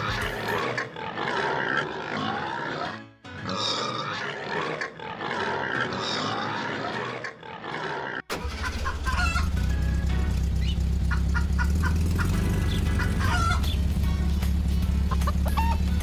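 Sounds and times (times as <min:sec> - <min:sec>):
background music: 0:00.0 - 0:07.5, 0:08.4 - 0:16.0
pigs grunting: 0:00.0 - 0:08.3.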